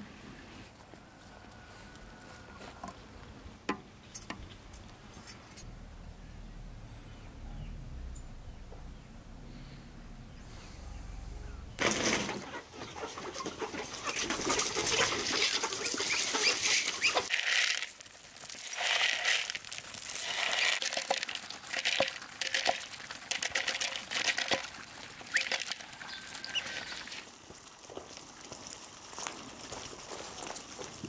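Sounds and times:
chickens clucking: 10.3 - 17.3
beaks pecking corn on gravel: 11.7 - 31.0.

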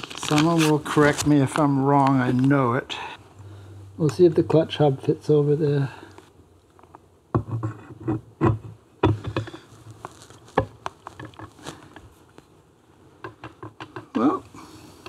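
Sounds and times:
small metallic clicks and knocks: 13.2 - 14.2.

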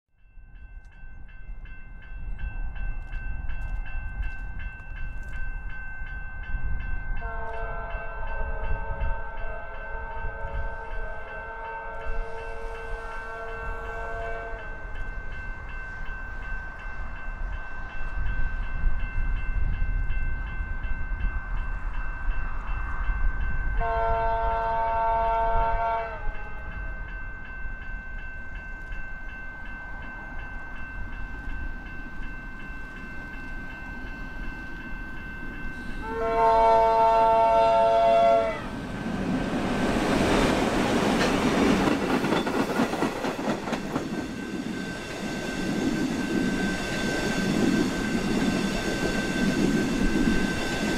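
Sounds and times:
train rumble: 0.6 - 50.9
locomotive horn: 7.2 - 14.8, 23.8 - 26.7, 36.0 - 38.7.

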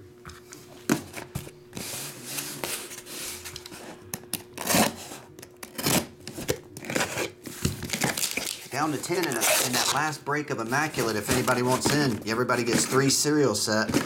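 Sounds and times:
knife cutting packing tape: 4.6 - 13.2.

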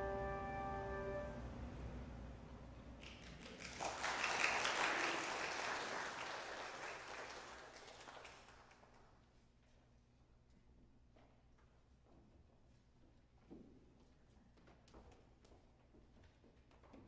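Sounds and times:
handbell choir chord: 0.0 - 1.4
applause: 3.0 - 9.2.

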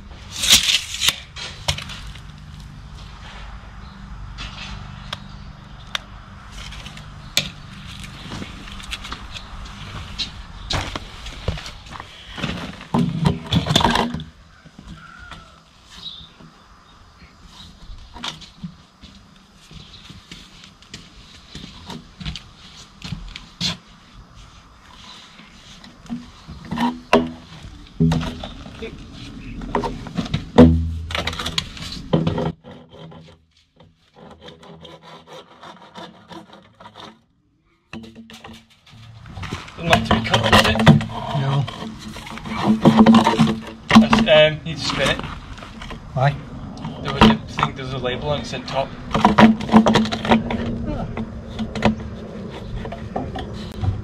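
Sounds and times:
knocks and scrapes: 0.1 - 16.6, 17.2 - 37.3, 37.9 - 54.0
hand tool rasping: 34.1 - 37.2.

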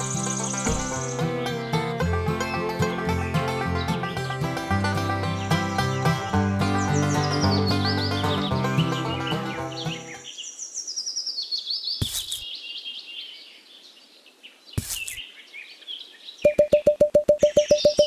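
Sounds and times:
music: 0.0 - 10.2
birds chirping and twittering: 0.0 - 18.0
brief knocks: 0.7 - 1.1
short beeping tones: 16.5 - 18.0.

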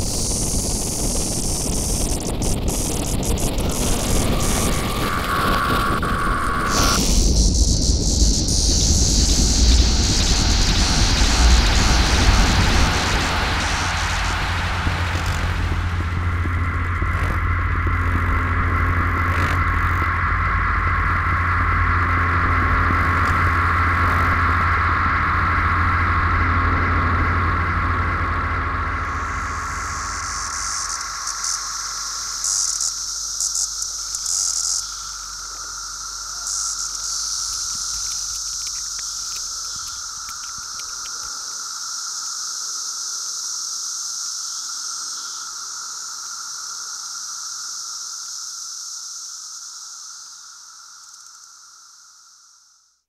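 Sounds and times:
low hum: 0.0 - 41.9
high buzzing drone: 0.0 - 42.3.

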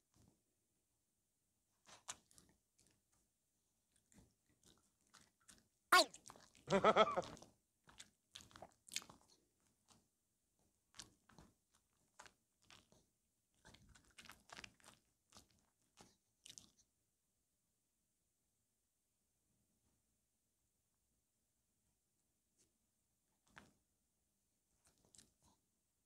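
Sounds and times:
dog licking and biting strawberry: 1.8 - 3.0, 3.9 - 6.6, 7.2 - 10.1, 10.9 - 16.8.

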